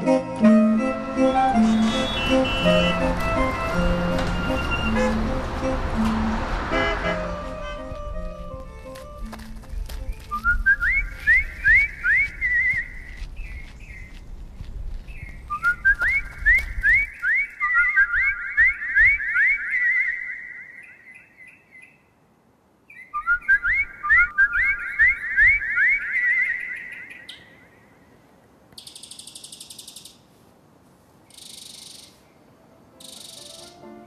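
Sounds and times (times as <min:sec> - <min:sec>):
quick rising whistles: 0:01.0 - 0:03.7.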